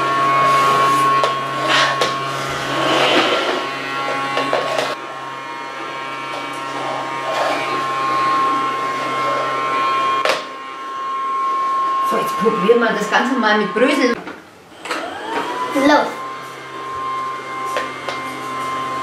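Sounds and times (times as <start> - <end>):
toy vacuum motor whining: 0.0 - 14.2, 14.8 - 19.0.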